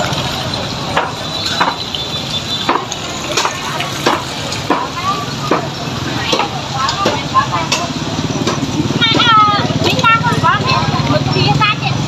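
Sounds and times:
market crowd hubbub: 0.0s - 12.0s
sharp knocks: 1.0s - 1.8s, 2.6s - 9.3s.

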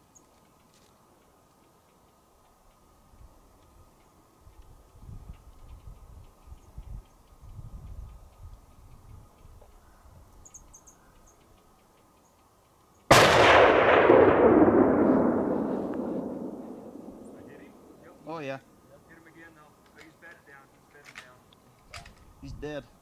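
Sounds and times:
rifle shot echoing: 13.1s - 18.0s.

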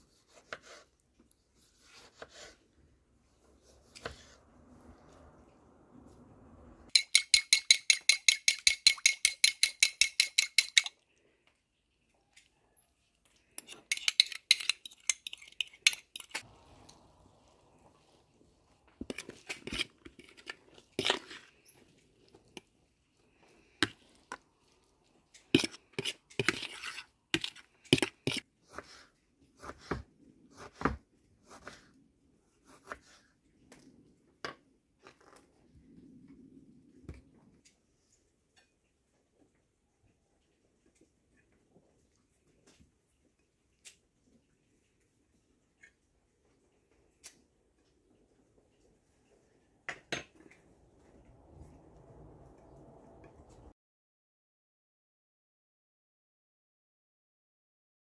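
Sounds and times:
metal utensil scraping plastic bowl: 6.9s - 10.9s, 13.5s - 16.5s, 19.0s - 22.7s, 25.4s - 28.4s.

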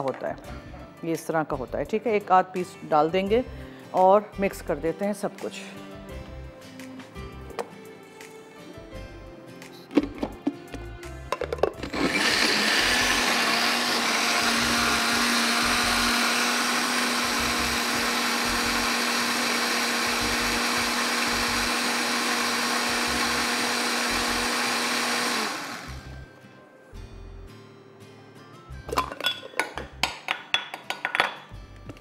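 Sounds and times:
blender clicks: 11.4s - 26.0s
blender running: 11.8s - 26.3s.

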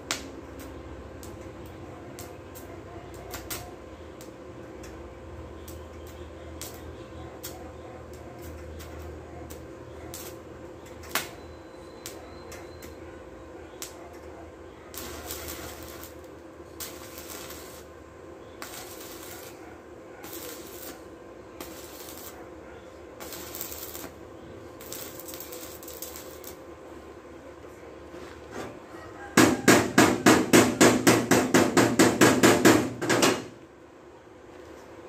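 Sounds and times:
welding arc crackling: 0.0s - 13.1s, 13.8s - 14.3s, 14.9s - 22.6s, 23.2s - 26.7s
steady low hum: 0.0s - 35.0s.

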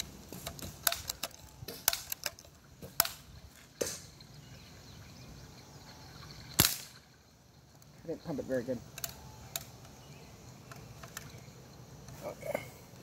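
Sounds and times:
bb gun pumping clicks: 0.3s - 3.2s.

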